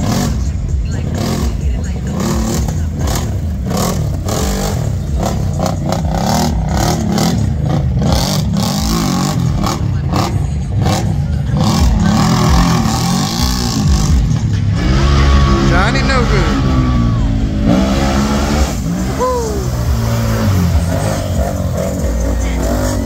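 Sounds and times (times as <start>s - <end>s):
atv engine revving: 0.0s - 23.0s.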